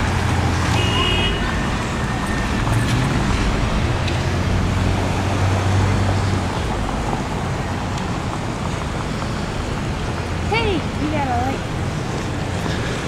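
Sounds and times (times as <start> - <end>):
cars driving past: 0.0 - 13.0.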